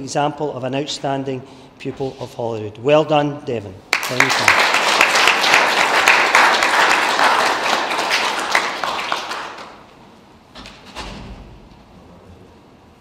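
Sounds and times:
audience applauding: 3.9s - 9.9s.

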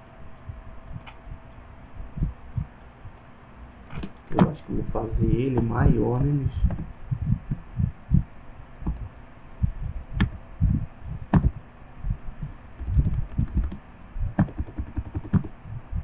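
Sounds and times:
typing on computer keyboard: 12.8s - 13.8s, 14.4s - 15.5s.

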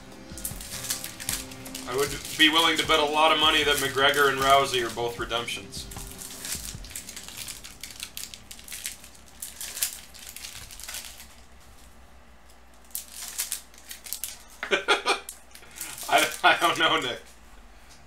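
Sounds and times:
cards rustling and sliding: 0.2s - 5.2s.

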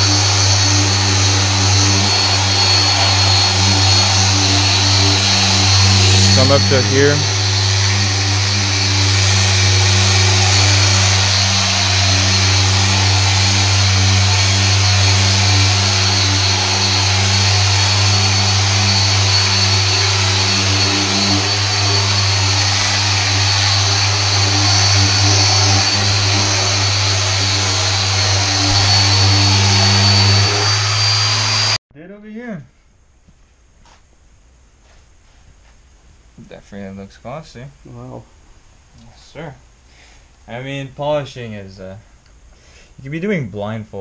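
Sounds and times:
electric polisher humming and whining: 0.0s - 31.8s.

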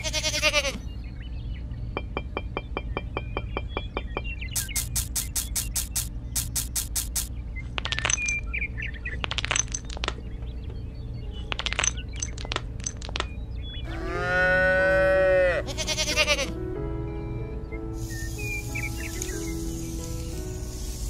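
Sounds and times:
background music: 13.6s - 21.0s
cow mooing: 13.9s - 16.5s.

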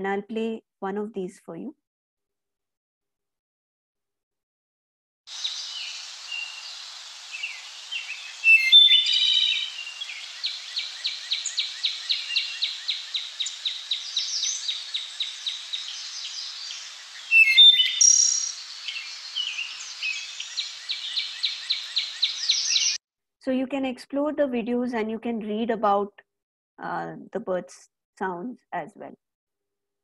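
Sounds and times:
short bird chirps: 7.3s - 23.0s.

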